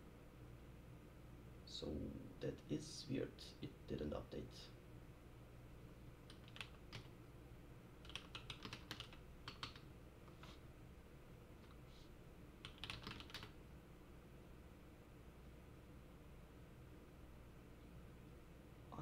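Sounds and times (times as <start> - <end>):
computer keyboard typing: 6.3 - 7.1, 8.0 - 9.8, 12.6 - 13.6.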